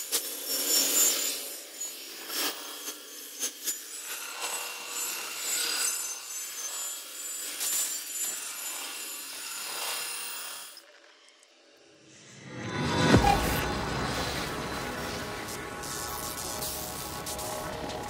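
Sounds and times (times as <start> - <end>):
scratchy grainy noise music: 12.1 - 18.0.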